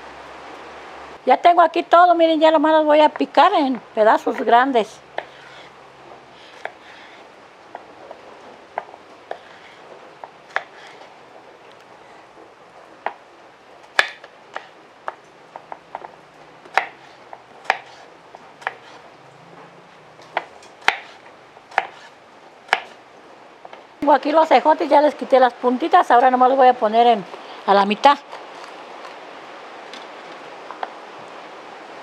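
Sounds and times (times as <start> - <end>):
knife chopping on wooden board: 14.0 - 15.2, 16.7 - 19.0, 20.3 - 22.1, 22.7 - 23.0.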